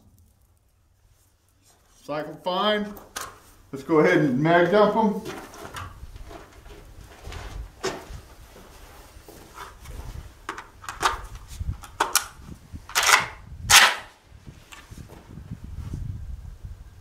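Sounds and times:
shotgun action clacking: 0:12.9 - 0:14.1.

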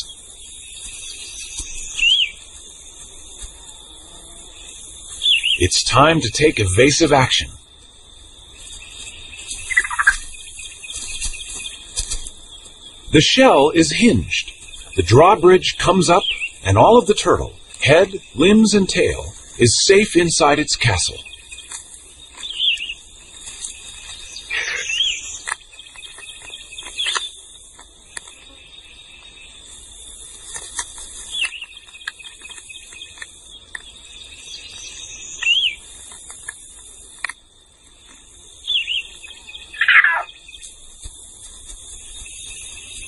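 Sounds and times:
steady high-pitched hum: 0:00.0 - 0:43.0
short high animal chirps: 0:09.7 - 0:10.2, 0:39.8 - 0:40.3.

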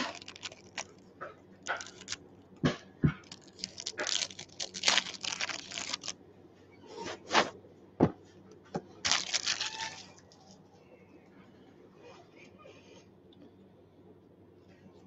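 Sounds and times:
wrappers rustling and tearing: 0:00.0 - 0:01.0, 0:01.6 - 0:02.2, 0:03.2 - 0:06.1, 0:09.0 - 0:10.5.

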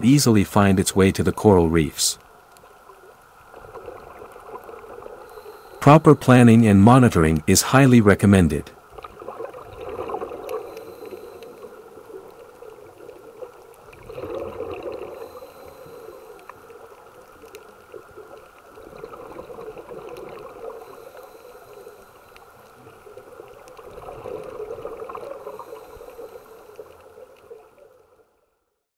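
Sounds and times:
underwater bubbling and gurgling: 0:00.0 - 0:28.6.

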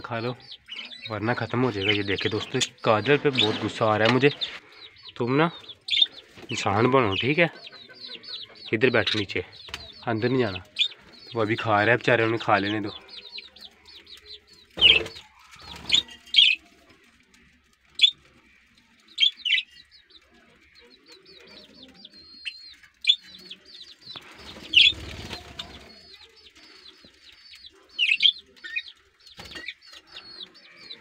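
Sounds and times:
budgerigars chirping: 0:00.0 - 0:16.6, 0:18.0 - 0:31.0
wings flapping: 0:24.2 - 0:27.2.

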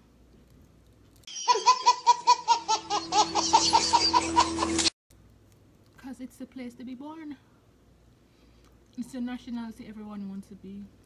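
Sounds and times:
baby laughing hard: 0:01.3 - 0:04.9.

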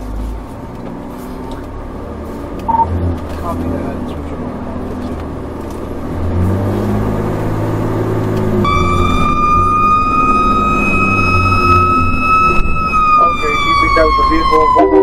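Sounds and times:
fire truck engine drone: 0:00.0 - 0:15.0
siren wailing: 0:08.6 - 0:15.0.

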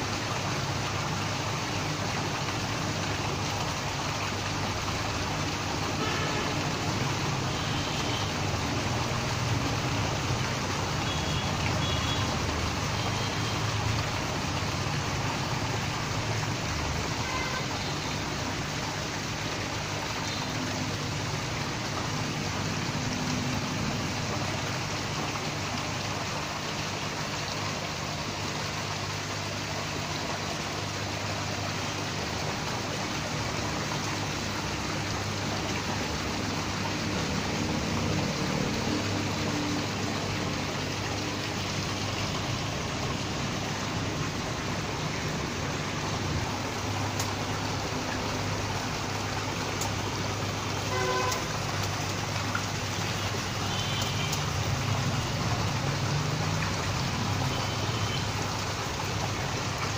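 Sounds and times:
running splashing water: 0:00.0 - 0:59.9.

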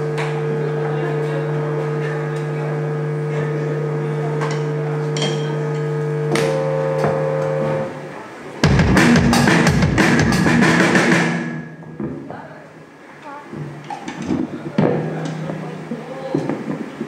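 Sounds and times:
synthesizer drone: 0:00.0 - 0:12.0
drum kit playing: 0:08.6 - 0:12.0.

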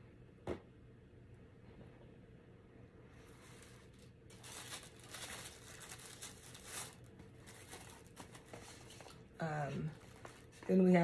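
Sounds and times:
packaging paper rustling: 0:03.2 - 0:10.8.

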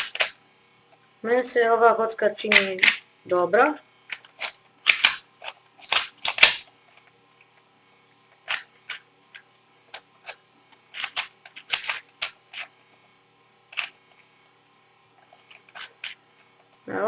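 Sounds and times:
plastic puzzle cube clicks: 0:04.1 - 0:06.7.

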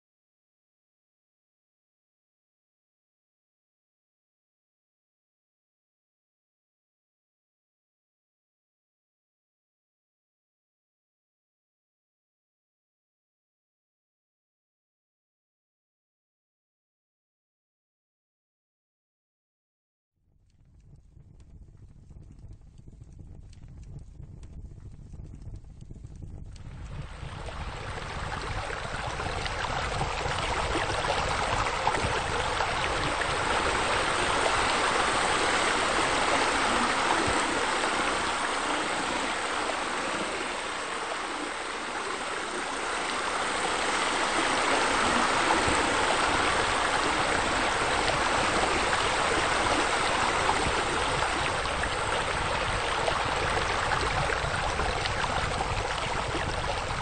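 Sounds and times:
flowing splashing water: 0:26.7 - 0:57.0.

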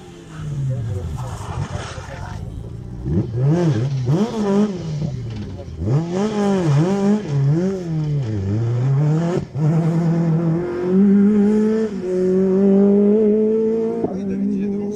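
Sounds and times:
rally car engine revving: 0:00.0 - 0:14.9.

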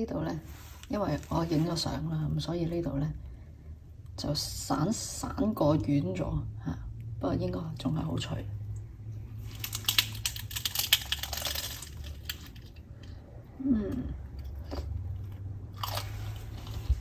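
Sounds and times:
crunching bite into fried food: 0:15.7 - 0:17.0.

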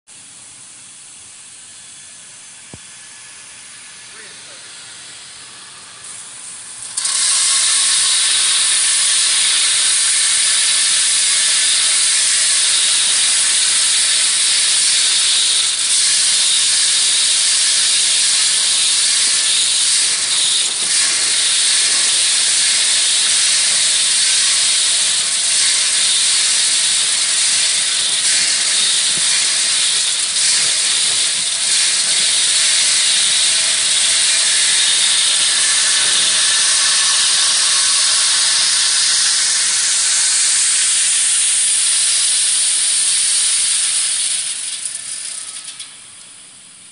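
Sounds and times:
industrial vacuum suction hiss: 0:00.1 - 0:46.9
rock chips sucked into hose: 0:01.7 - 0:46.0.

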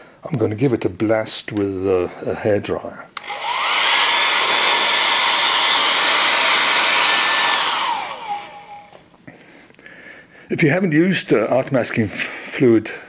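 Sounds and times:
rush of blown air: 0:03.2 - 0:08.9
hair dryer motor whine: 0:03.2 - 0:09.0.

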